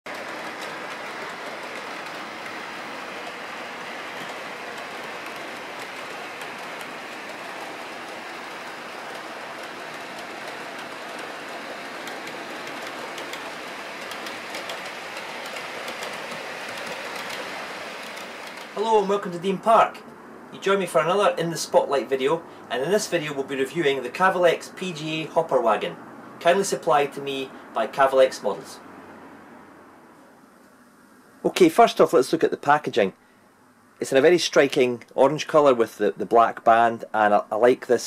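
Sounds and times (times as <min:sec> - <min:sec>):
wheels clicking over rail joints: 0:00.1 - 0:19.9
model train wheels rolling hiss: 0:00.1 - 0:20.0.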